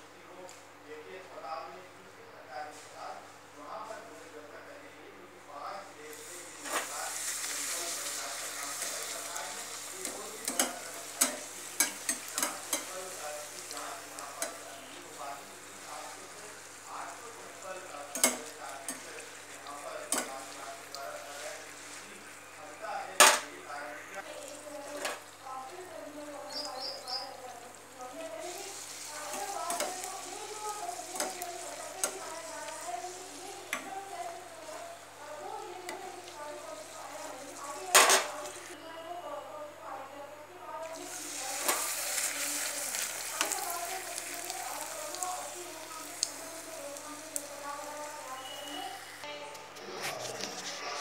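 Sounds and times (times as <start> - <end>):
dough sizzling in hot oil: 6.1 - 38.8, 40.9 - 49.2
metal spoon clinking against pan: 10.0 - 13.0, 18.1 - 19.1, 20.1 - 20.3.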